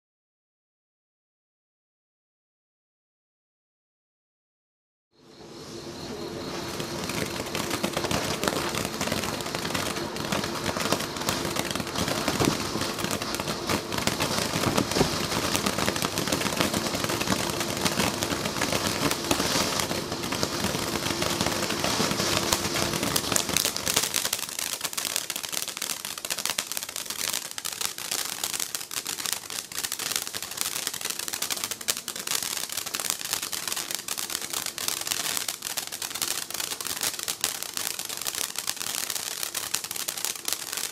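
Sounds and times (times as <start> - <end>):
steady hum: 5.2 - 24.2
firework fountain crackling: 5.5 - 40.9.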